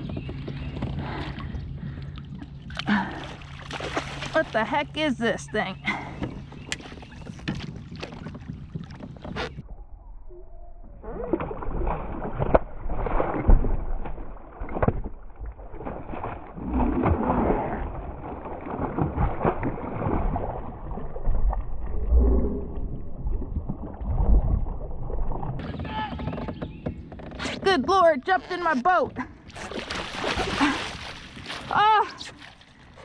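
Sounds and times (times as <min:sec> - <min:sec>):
fish splashing in water: 0:02.8 - 0:04.5, 0:29.6 - 0:31.8.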